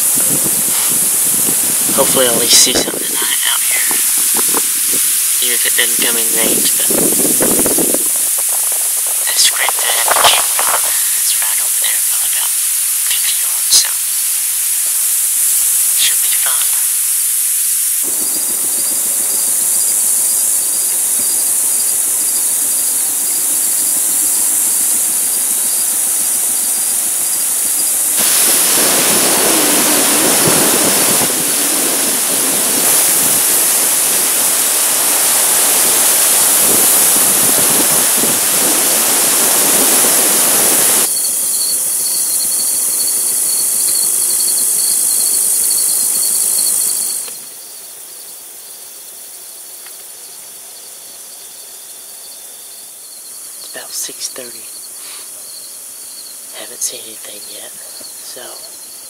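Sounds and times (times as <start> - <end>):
loud rushing noise: 0.0 - 41.5
cricket-like trill: 0.0 - 59.0
insect chorus buzzing: 0.0 - 59.0.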